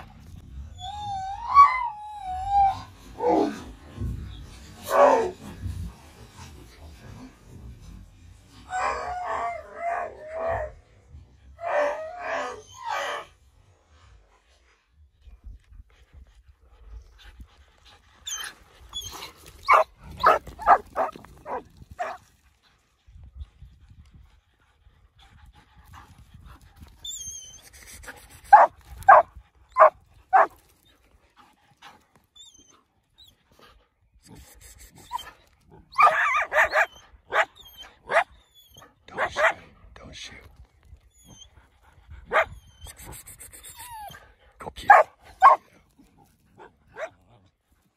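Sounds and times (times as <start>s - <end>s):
dogs barking: 19.7s - 22.2s, 28.5s - 30.5s, 36.0s - 37.5s, 39.1s - 39.6s, 44.9s - 45.7s.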